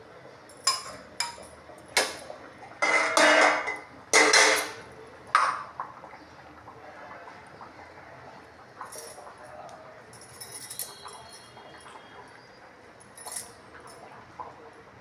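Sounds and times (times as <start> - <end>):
metal pots clanking and scraping: 0.6 - 5.7, 10.2 - 12.1.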